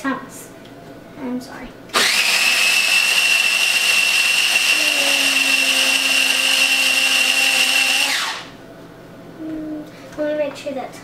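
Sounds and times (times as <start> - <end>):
food processor motor whine: 2.0 - 8.6.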